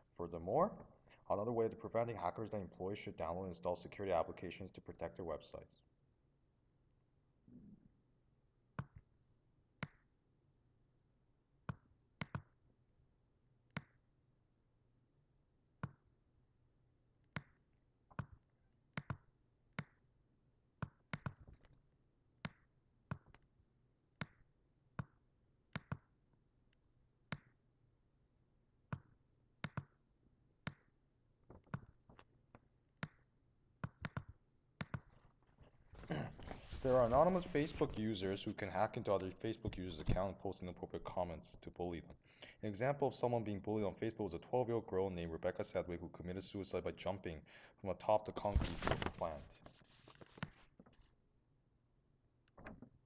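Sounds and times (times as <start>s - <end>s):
computer mouse clicking: 11.7s - 12.5s, 19.0s - 19.2s, 25.0s - 26.1s, 33.8s - 35.2s.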